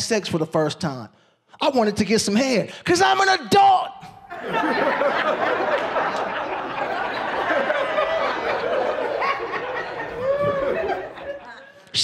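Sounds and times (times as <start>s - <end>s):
audience laughing: 4.3s - 12.0s.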